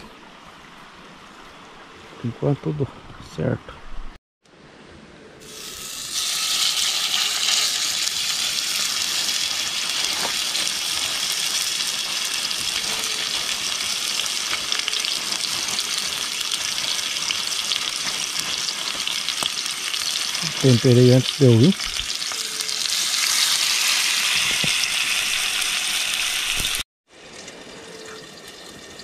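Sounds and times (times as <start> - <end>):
meat sizzling in hot oil: 5.4 - 26.8, 27.9 - 29.0.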